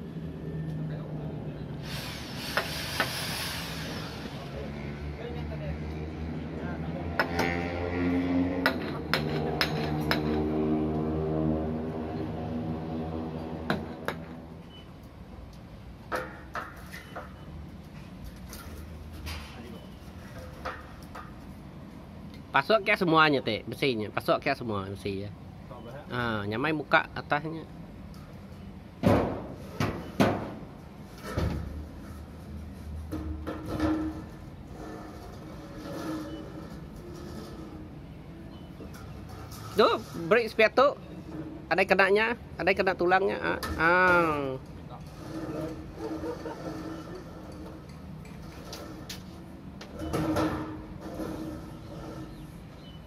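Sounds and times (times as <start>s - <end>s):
steel bars scraping: 31.2s - 41.6s, 44.9s - 52.9s.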